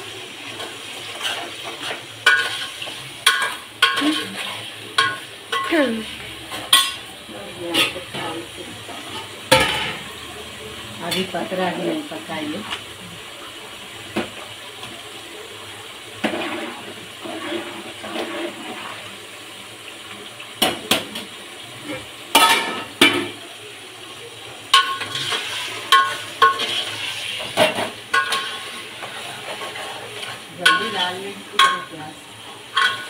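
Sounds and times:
frying hiss: 0.0 - 33.0
metal utensils clinking on pots: 0.5 - 10.1, 11.0 - 12.8, 20.6 - 23.4, 24.7 - 33.0.

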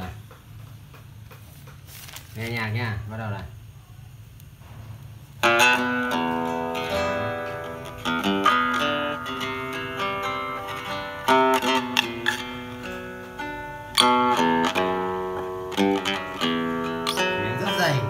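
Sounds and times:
plucked guitar intro: 5.4 - 18.0.

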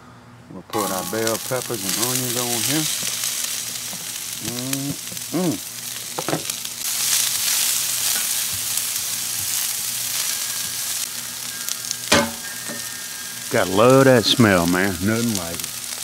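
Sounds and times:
metal tongs stirring: 0.8 - 3.1
vegetables sizzling on griddle: 0.8 - 16.0.

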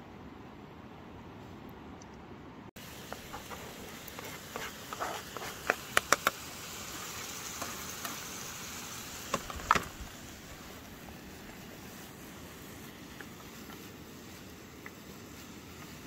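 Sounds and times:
onions sizzling in oil: 2.8 - 16.0
spatula scraping a pan: 3.1 - 6.4.

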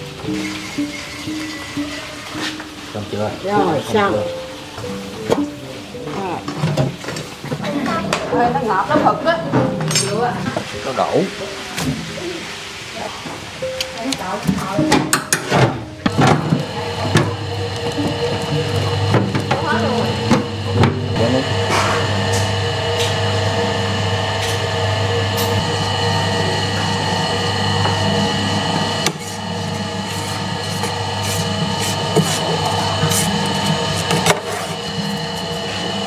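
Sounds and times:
electric grinder humming: 16.0 - 36.0.

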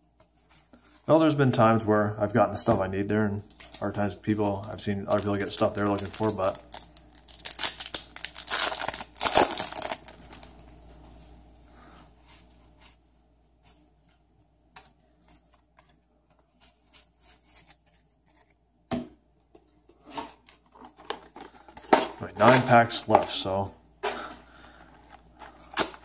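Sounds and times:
foil pack tearing and crinkling: 4.5 - 10.7.

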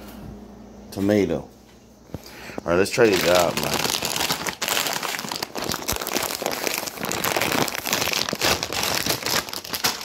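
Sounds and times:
plastic chip bag crinkling: 2.6 - 10.0.

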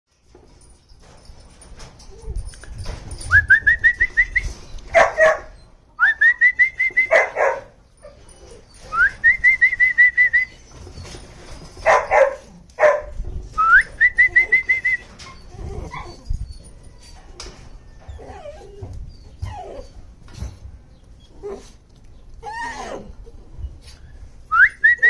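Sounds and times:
puppies barking: 4.9 - 5.6, 7.0 - 8.6, 11.8 - 13.2.

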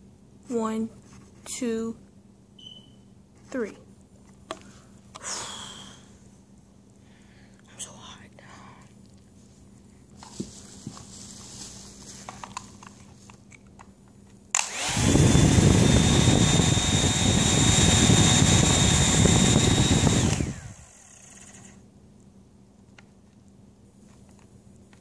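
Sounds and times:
hair dryer motor whine: 14.6 - 21.8.

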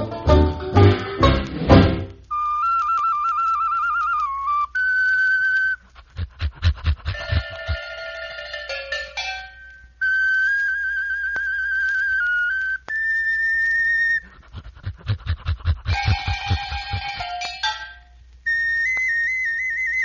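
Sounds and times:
high whistle-like melody: 2.3 - 5.8, 9.4 - 14.3, 15.9 - 20.0
quick low drum beat: 6.0 - 7.9, 14.6 - 17.4.

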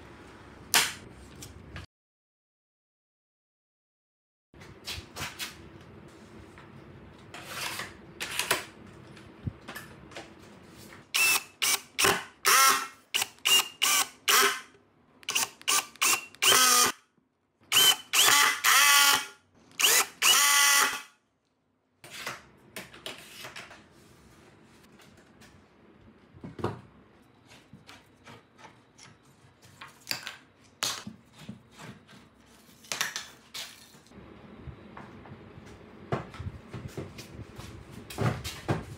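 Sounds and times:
cordless screwdriver whirring: 11.2 - 14.6, 15.2 - 17.0, 17.7 - 21.0.

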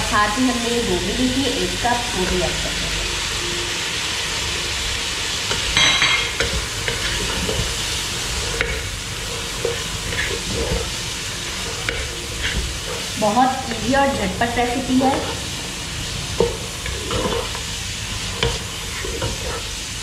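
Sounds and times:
stir-fry sizzling: 0.0 - 20.0
wooden spoon scraping a pot: 6.3 - 15.6, 16.3 - 19.9.

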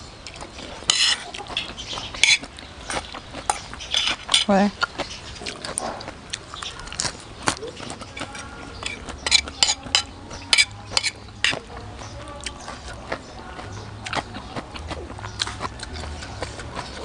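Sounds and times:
spoon and fork clinking on plate: 0.9 - 1.2, 8.2 - 11.6.

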